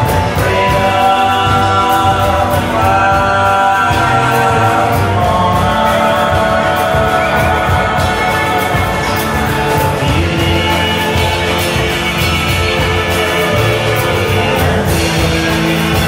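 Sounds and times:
live country band playing: 0:00.0 - 0:16.0
voices singing in harmony: 0:00.0 - 0:16.0.

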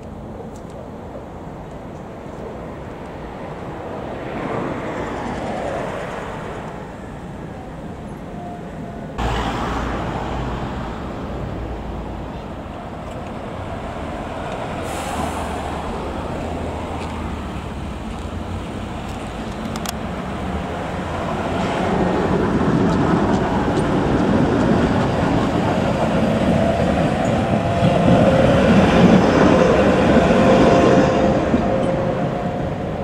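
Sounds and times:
heavy low rumble: 0:09.2 - 0:13.0
vehicle traffic passing: 0:09.2 - 0:33.0.

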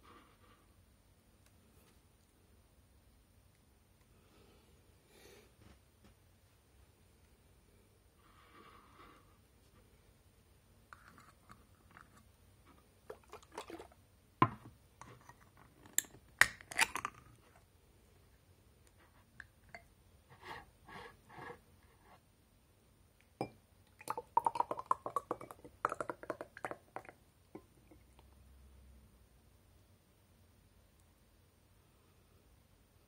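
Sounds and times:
liquid plops and drips: 0:13.1 - 0:14.0, 0:23.9 - 0:28.2.

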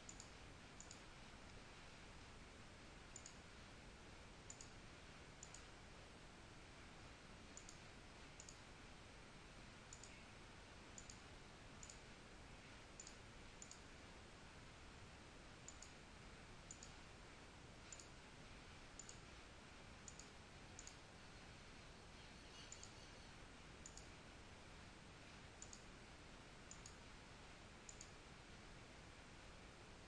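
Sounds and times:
computer mouse clicks: 0:00.0 - 0:01.6, 0:03.1 - 0:03.5, 0:04.4 - 0:04.8, 0:05.4 - 0:05.7, 0:07.5 - 0:08.7, 0:09.9 - 0:10.3, 0:11.0 - 0:12.1, 0:12.8 - 0:13.9, 0:15.6 - 0:16.0, 0:16.6 - 0:17.0, 0:17.8 - 0:18.2, 0:19.0 - 0:19.3, 0:20.0 - 0:21.1, 0:22.5 - 0:23.1, 0:23.8 - 0:24.2, 0:25.6 - 0:26.0, 0:26.7 - 0:27.1, 0:27.9 - 0:28.2
low steady hiss: 0:00.0 - 0:30.0.

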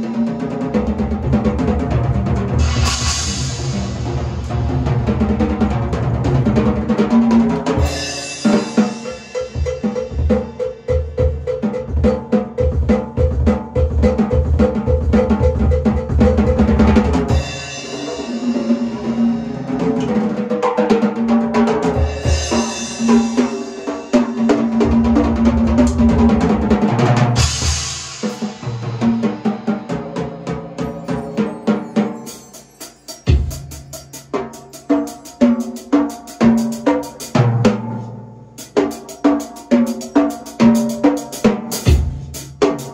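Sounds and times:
drum kit playing fills: 0:00.0 - 0:42.9
cymbal crash: 0:02.6 - 0:05.2.

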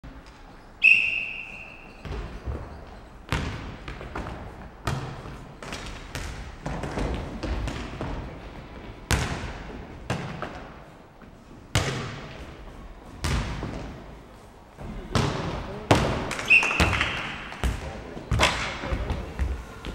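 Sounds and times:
referee whistle blast: 0:00.8 - 0:02.0, 0:16.4 - 0:17.2.

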